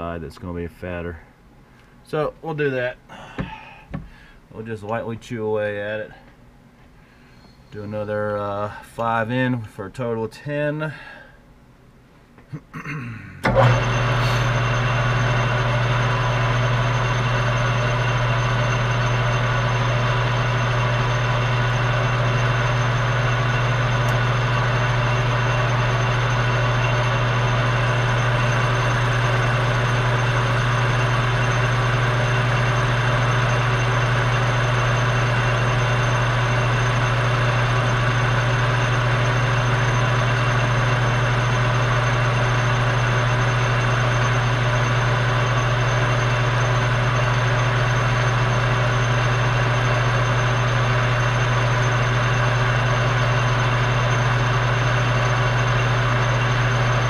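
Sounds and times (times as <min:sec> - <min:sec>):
metal lathe humming: 0:13.4 - 0:57.0.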